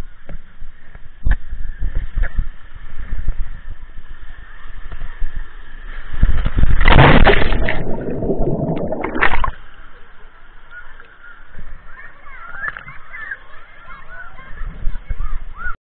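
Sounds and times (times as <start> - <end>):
water splashing and churning: 6.4 - 9.7.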